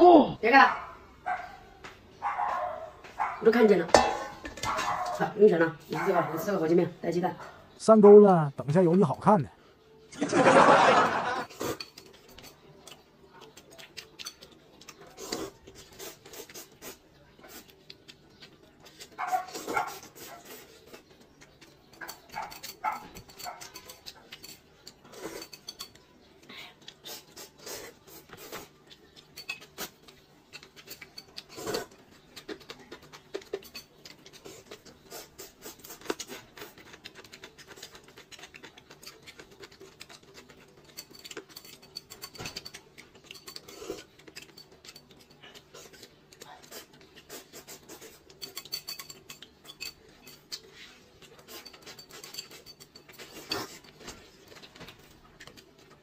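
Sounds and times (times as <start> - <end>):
chewing: 11.4 - 56.0.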